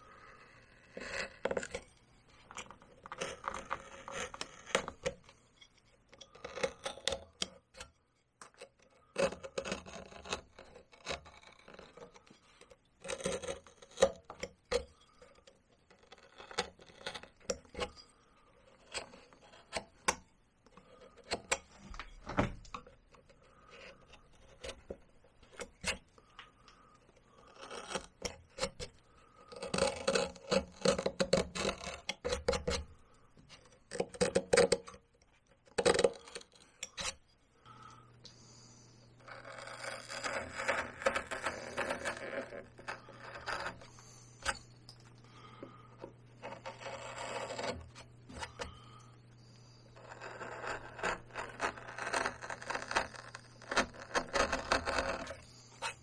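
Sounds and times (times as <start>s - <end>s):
carving tool scraping bark: 0.0s - 22.0s, 22.7s - 37.2s, 39.2s - 56.0s.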